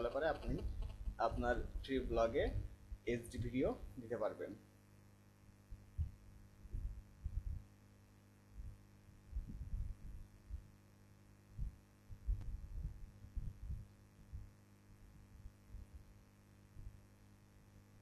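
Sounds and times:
low electrical hum: 0.0s - 18.0s
low thumps and rumbles: 5.8s - 7.6s, 8.6s - 10.6s, 11.6s - 14.5s.

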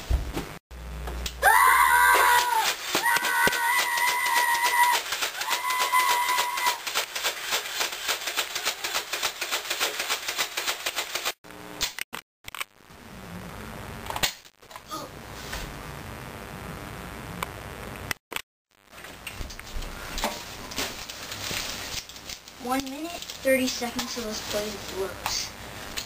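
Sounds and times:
rapid sharp clicks or shots: 2.7s - 12.0s.

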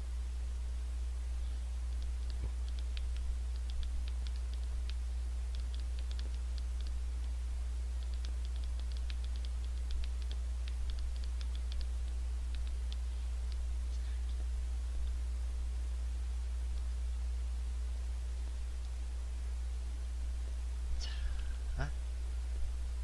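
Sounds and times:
low electrical hum: 0.0s - 23.0s
thumbs typing on touchscreen: 1.9s - 7.3s, 7.9s - 13.6s.

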